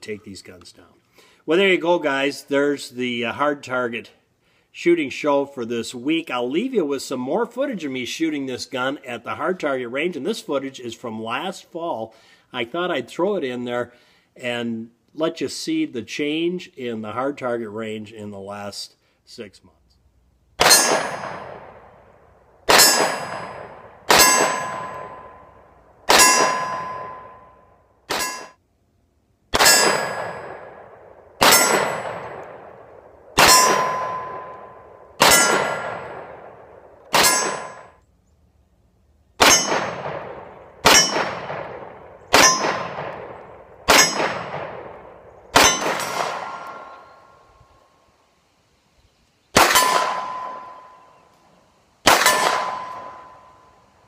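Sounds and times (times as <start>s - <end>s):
steel target ringing: 20.6s - 21.8s, 22.7s - 28.6s, 29.6s - 32.8s, 33.4s - 38.0s, 39.4s - 47.3s, 49.6s - 51.2s, 52.1s - 53.9s
pistol shots: 20.6s - 27.5s, 28.1s - 28.6s, 29.5s - 38.0s, 39.4s - 47.4s, 49.6s - 51.2s, 52.0s - 53.6s.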